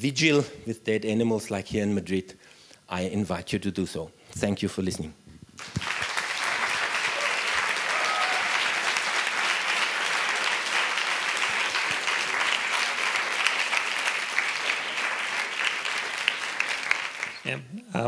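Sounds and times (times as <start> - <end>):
audience applauding: 5.6 - 17.5.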